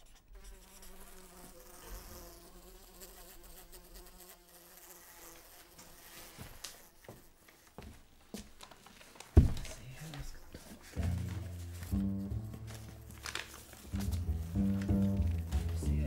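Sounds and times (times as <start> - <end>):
flying insect buzzing: 0.4 - 7.2.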